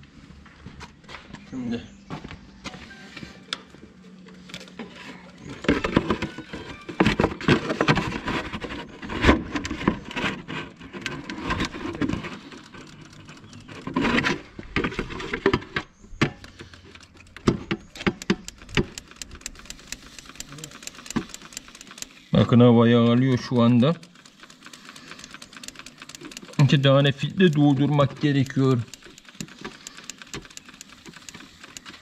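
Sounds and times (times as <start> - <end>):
hand pump lever metallic clacks: 16.3 - 22.4, 23.1 - 32.0.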